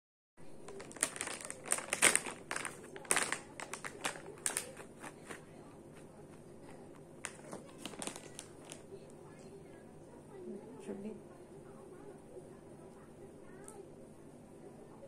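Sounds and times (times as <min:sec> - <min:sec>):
plastic pouch crinkling: 0:00.4 - 0:05.4, 0:07.2 - 0:09.0.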